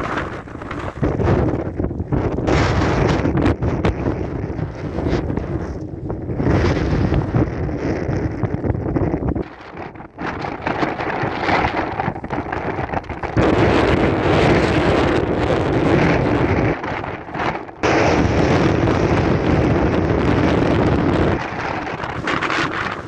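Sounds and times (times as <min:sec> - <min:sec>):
wind gusts buffeting microphone: 0:00.0 - 0:23.0.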